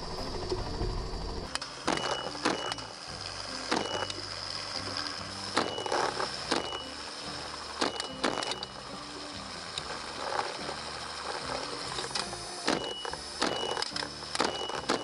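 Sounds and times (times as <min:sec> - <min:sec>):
helicopter engine and rotor: 0:00.0 - 0:03.0.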